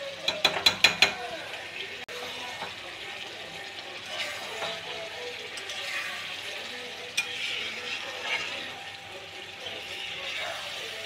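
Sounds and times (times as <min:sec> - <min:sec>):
oil sizzling: 0:00.0 - 0:11.0
spatula clinking against pan: 0:00.2 - 0:01.3, 0:07.0 - 0:08.7
spatula scraping curry in pan: 0:04.0 - 0:09.0, 0:09.6 - 0:11.0.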